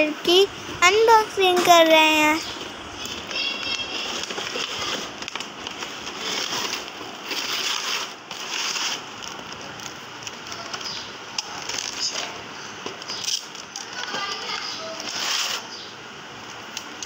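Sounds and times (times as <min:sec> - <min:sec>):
plastic packaging crinkling: 0:02.9 - 0:15.7.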